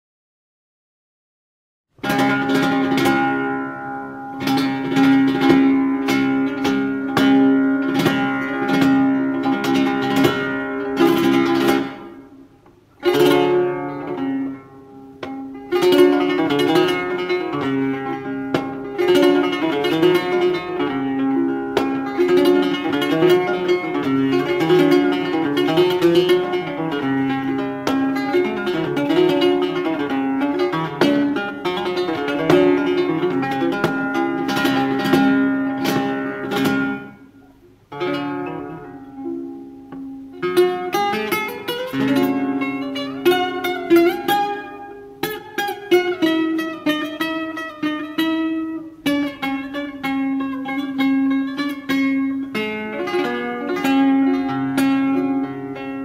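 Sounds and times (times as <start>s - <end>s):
flamenco guitar playing: 2.0s - 56.0s.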